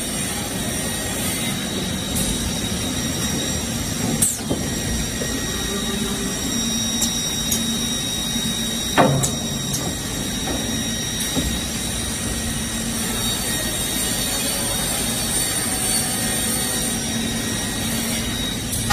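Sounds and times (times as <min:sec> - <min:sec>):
panel saw humming and whining: 0:00.0 - 0:18.9
loud clunk: 0:09.0 - 0:10.7.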